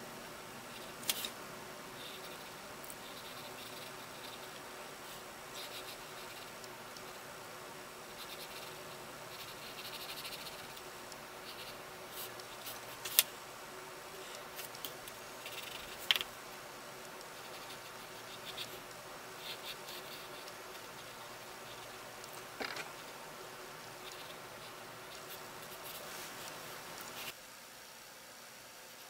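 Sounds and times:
pencil scratching on paper: 2.0 - 7.2, 8.1 - 13.2, 17.3 - 18.8, 19.4 - 22.4.

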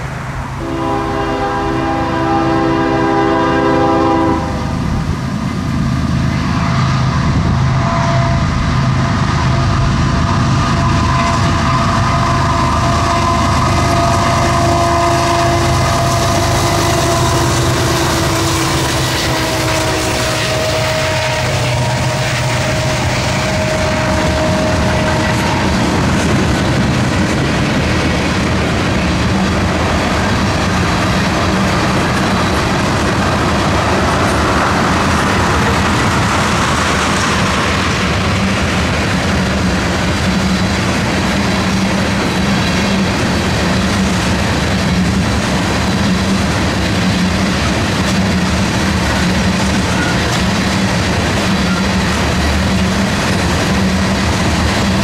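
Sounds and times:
freight train rolling past: 0.0 - 55.0.

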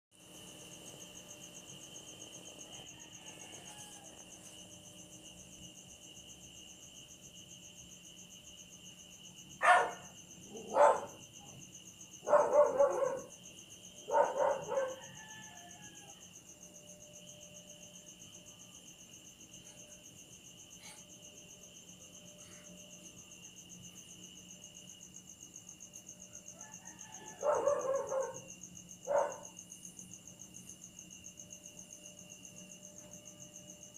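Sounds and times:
high-pitched insect chirping: 0.2 - 33.9
dog barking: 9.6 - 11.6, 12.2 - 13.3, 14.0 - 15.1, 27.3 - 29.5.

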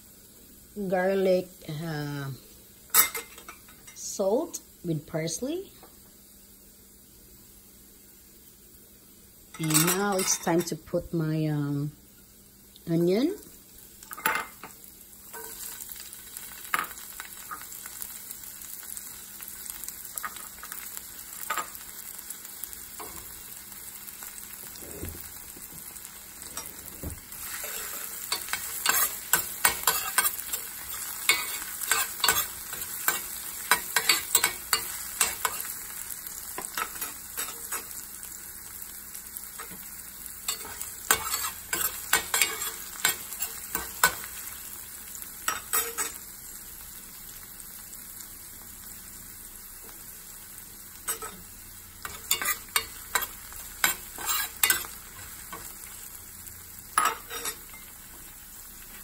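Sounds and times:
onion sizzling in oil: 0.0 - 59.0
metal spoon scraping a pan: 9.6 - 10.8, 26.4 - 38.0, 40.5 - 44.4, 45.4 - 46.2, 51.0 - 51.4, 52.0 - 55.7, 57.0 - 57.9.

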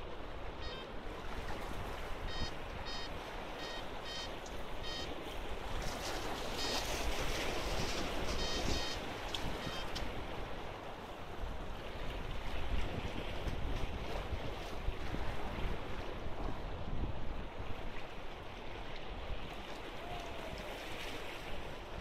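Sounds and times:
waves splashing over rocks: 0.0 - 22.0
short electronic beeps: 0.6 - 0.9, 2.3 - 5.1, 6.6 - 6.8, 8.4 - 9.0, 9.6 - 10.0.

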